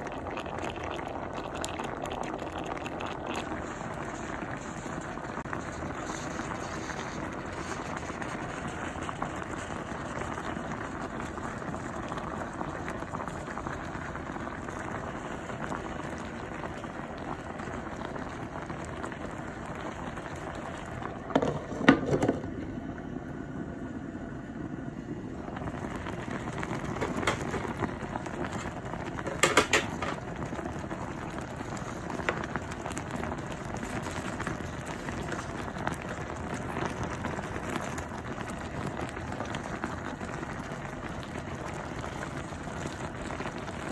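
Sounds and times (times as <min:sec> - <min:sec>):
soup bubbling in a pot: 0:00.0 - 0:43.9
glass pot lid clattering: 0:27.0 - 0:27.7, 0:29.3 - 0:30.2.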